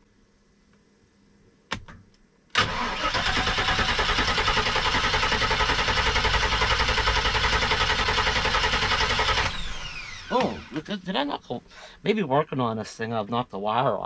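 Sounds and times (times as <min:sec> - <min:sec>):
engine cranking without starting: 0:02.6 - 0:11.0.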